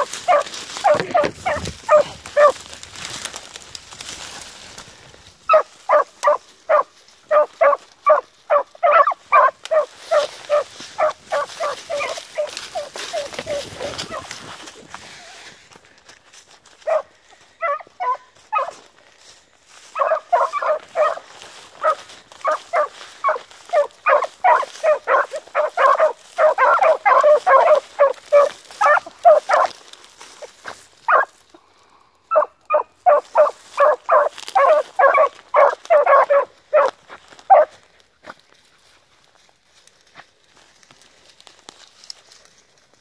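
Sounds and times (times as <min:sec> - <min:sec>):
hounds barking: 0:00.0 - 0:02.7, 0:05.4 - 0:14.4, 0:16.8 - 0:18.9, 0:19.8 - 0:31.4, 0:32.3 - 0:37.8.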